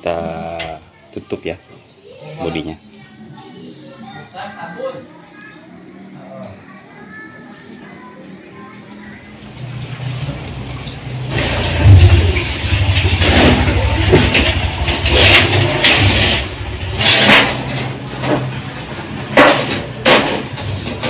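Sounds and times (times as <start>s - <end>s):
low engine-like hum: 8.2s - 21.0s
metal scraping: 11.2s - 21.0s
sharp metallic rattles: 11.2s - 21.0s.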